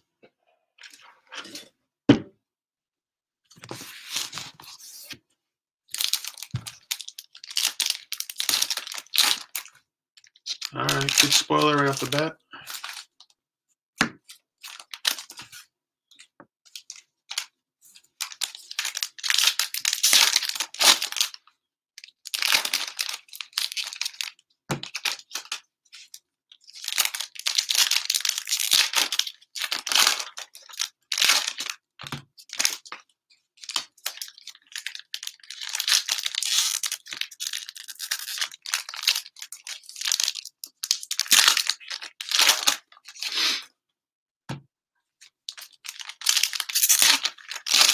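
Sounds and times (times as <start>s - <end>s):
plastic wrappers tearing and crinkling: 5.9s - 13.1s, 18.2s - 21.4s, 22.1s - 31.8s, 32.4s - 33.0s, 33.6s - 43.6s, 45.5s - 47.9s.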